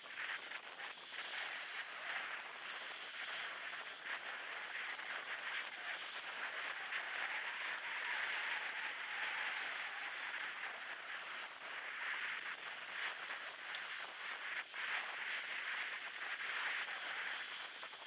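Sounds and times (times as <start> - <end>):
wind on microphone: 0.0 - 18.0.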